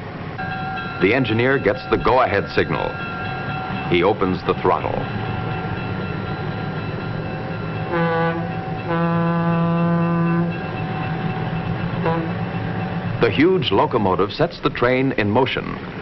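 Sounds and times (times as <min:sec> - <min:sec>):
locomotive running: 0:00.0 - 0:16.0
train air horn blasts: 0:07.9 - 0:10.5, 0:12.0 - 0:12.4.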